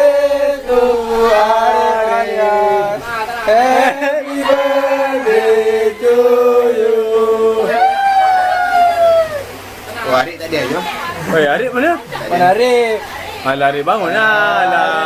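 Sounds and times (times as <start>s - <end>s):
group singing in unison: 0.0s - 8.0s.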